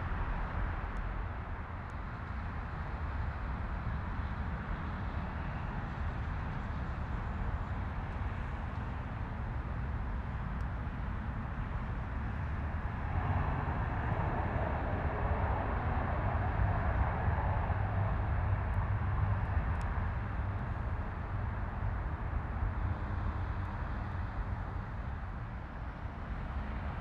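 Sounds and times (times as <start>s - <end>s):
turboprop aircraft taxiing: 0.0s - 27.0s.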